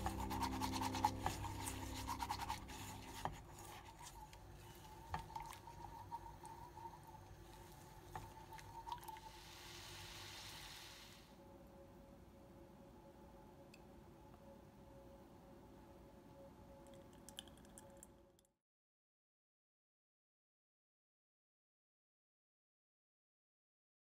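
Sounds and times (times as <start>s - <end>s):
background music: 0.0s - 4.1s
whisk scraping saucepan: 0.0s - 10.3s
brief even hiss: 9.3s - 11.3s.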